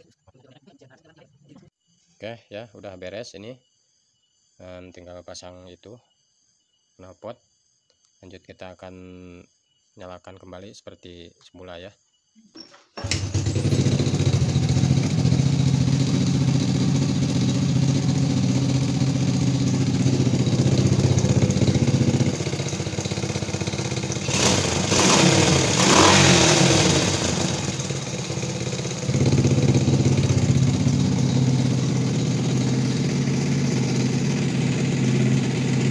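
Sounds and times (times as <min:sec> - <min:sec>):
motorcycle engine idling and revving: 0:13.0 - 0:35.9.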